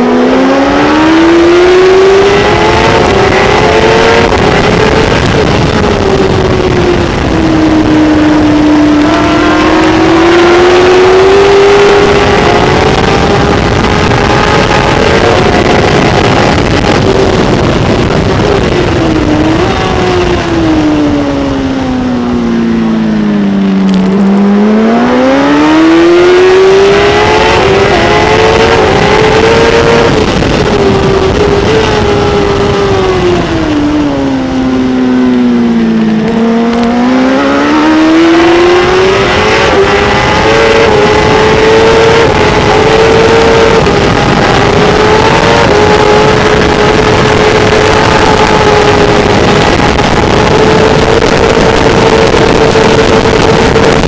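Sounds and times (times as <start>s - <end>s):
motorcycle engine revving: 0.0s - 54.0s
wind rush on microphone: 0.0s - 54.0s.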